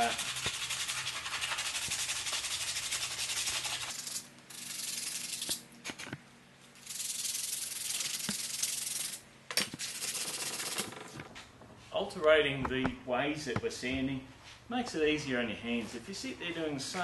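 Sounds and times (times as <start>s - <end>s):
sandpaper rasping on wood: 0.0s - 4.0s.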